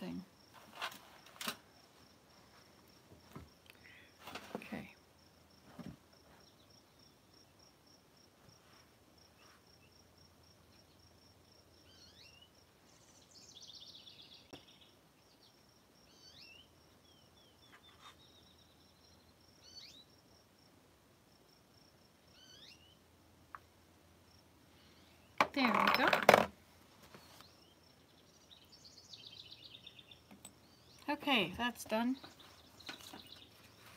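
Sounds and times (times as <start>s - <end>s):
bird chirps: 11.8s - 20.1s, 22.3s - 23.0s
insect trilling: 22.2s - 23.0s.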